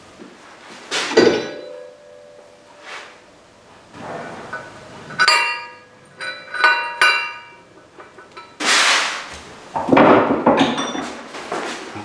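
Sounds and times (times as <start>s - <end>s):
loud scraping and rustling: 3.9s - 4.7s, 8.6s - 9.5s.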